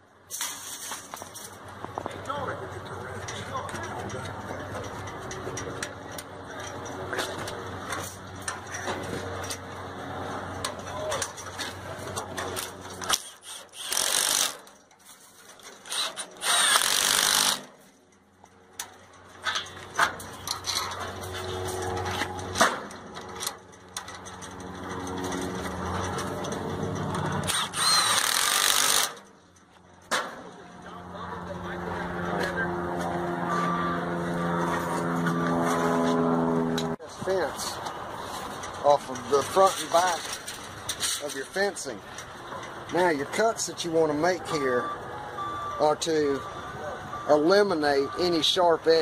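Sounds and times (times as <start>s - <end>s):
cordless drill driving nuts: 13.0s - 14.8s, 15.7s - 17.8s, 27.1s - 29.2s.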